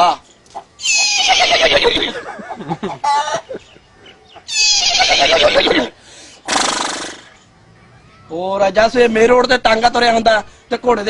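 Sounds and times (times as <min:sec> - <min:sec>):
man imitating horse whinny: 0:00.8 - 0:02.2, 0:04.5 - 0:05.9
breathy snort: 0:06.1 - 0:07.4.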